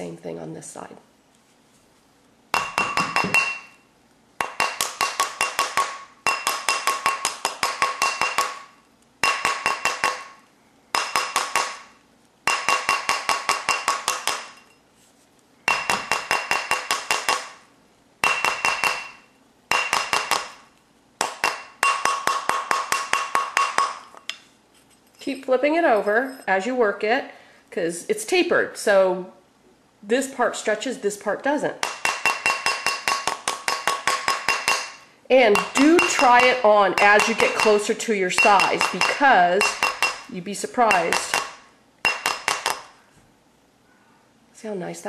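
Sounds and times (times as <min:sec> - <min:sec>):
mallet beating metal ring: 0:02.5 - 0:03.8, 0:04.4 - 0:11.9, 0:12.5 - 0:14.8, 0:15.7 - 0:17.6, 0:18.2 - 0:20.6, 0:21.2 - 0:24.1, 0:31.8 - 0:42.9
steel mandrel ringing: 0:32.1 - 0:42.7.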